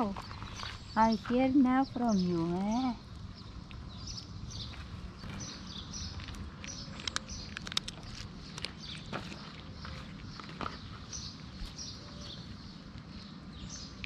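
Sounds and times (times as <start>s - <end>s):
small birds chirping: 0.0s - 14.0s
cat crunching dry kibble: 6.0s - 10.2s.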